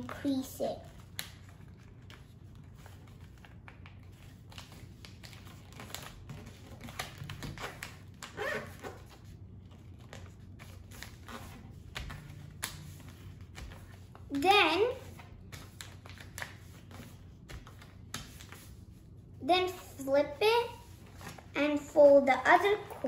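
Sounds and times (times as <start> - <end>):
paper rustling and crinkling: 0.8 - 14.4, 15.0 - 19.2, 20.8 - 21.6.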